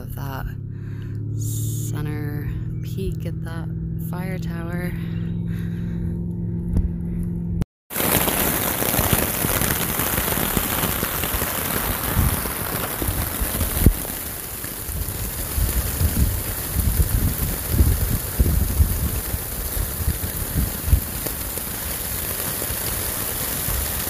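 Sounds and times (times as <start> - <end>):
low hum: 0.0 - 7.6
rain falling on a tarp: 7.9 - 24.0.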